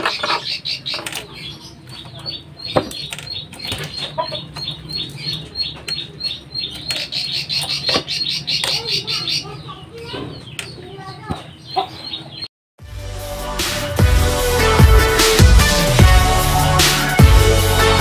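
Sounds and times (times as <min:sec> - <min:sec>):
rapid high chirping: 0:00.0 - 0:12.5.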